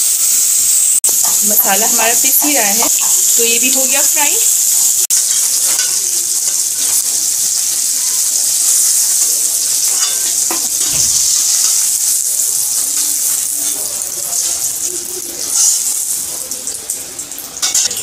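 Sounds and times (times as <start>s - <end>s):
fish sizzling in hot oil: 0.0s - 18.0s
metal spatula knocking pan: 9.8s - 11.9s.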